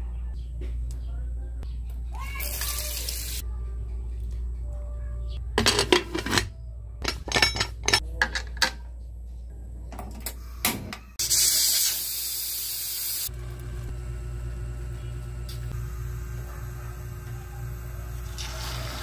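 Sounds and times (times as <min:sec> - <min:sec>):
steam hissing from pressure cooker: 0:11.2 - 0:13.3.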